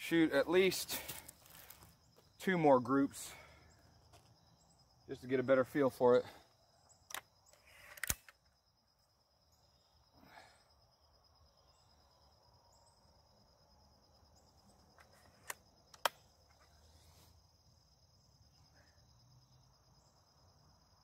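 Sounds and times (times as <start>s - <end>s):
high insect drone: 0.1s - 21.0s
air rifle cocking clicks: 7.0s - 8.5s, 15.0s - 16.2s.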